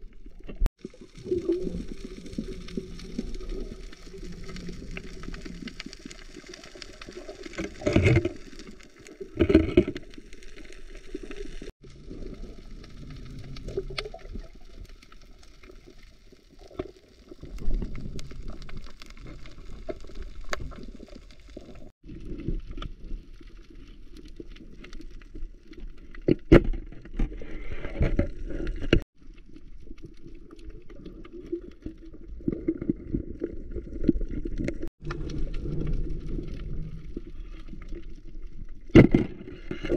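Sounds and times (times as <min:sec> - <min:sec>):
muffled underwater water noise: 0:00.0 - 0:39.9.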